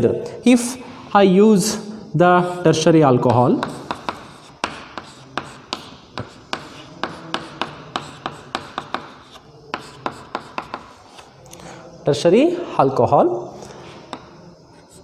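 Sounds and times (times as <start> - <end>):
chalk scratching on blackboard: 3.3 - 11.3, 13.6 - 15.0.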